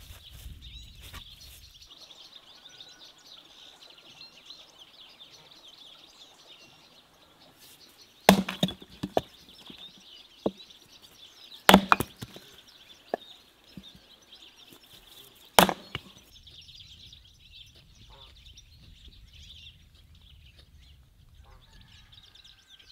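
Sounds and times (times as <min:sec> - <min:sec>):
birds chirping: 0:00.0 - 0:22.9
axe chopping firewood: 0:08.3 - 0:09.8, 0:11.7 - 0:13.2, 0:15.5 - 0:16.2.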